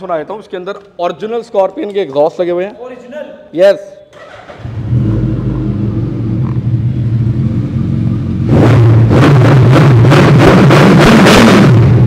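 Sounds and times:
motorcycle engine idling and revving: 4.2 - 12.0.

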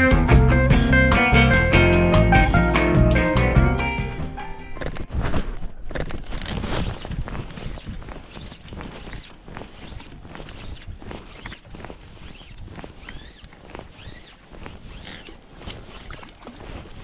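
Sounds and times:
fishing line handling noise: 4.8 - 17.0.

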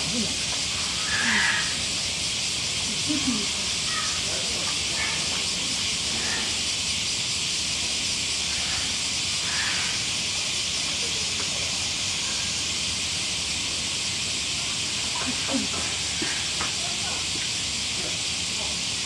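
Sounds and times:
steady high-pitched hiss: 0.0 - 19.0
faint voices: 2.8 - 6.5, 15.1 - 19.0.

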